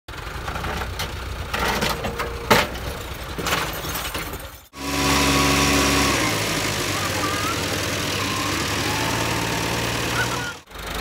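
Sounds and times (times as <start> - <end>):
tractor engine idling: 0.1 - 11.0
tractor engine rumble: 0.1 - 11.0
sharp knocks and clanks: 0.4 - 4.7.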